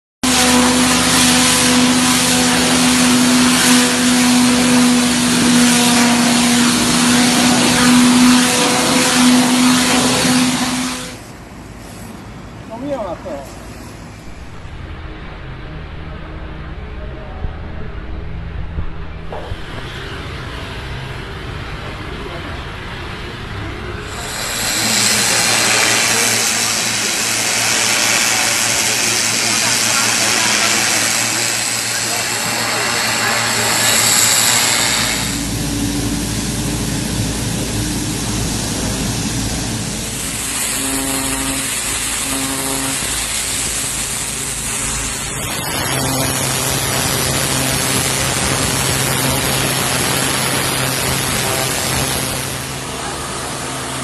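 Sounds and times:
water jet hissing on paving: 0:00.2 - 0:14.8, 0:24.0 - 0:54.0
pressure washer motor hum: 0:00.2 - 0:54.0.

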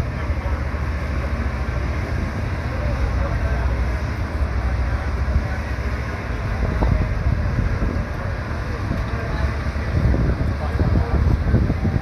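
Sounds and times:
low steady rumble: 0:00.0 - 0:12.0
wind buffeting microphone: 0:05.2 - 0:12.0.

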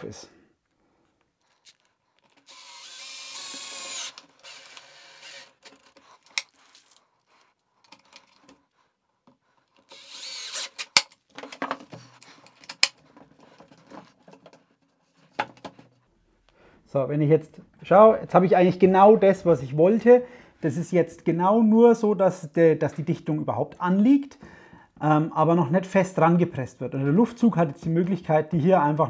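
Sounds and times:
cordless drill motor whirring: 0:02.3 - 0:06.0, 0:09.8 - 0:10.9.

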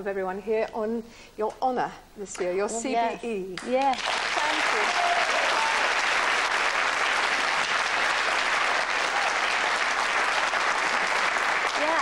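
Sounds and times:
studio audience applauding: 0:03.6 - 0:12.0.

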